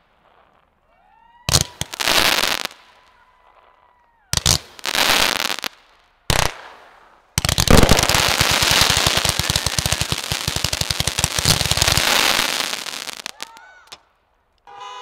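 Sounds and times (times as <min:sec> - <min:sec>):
firework shots with crackling: 0:01.5 - 0:03.2, 0:04.3 - 0:14.0.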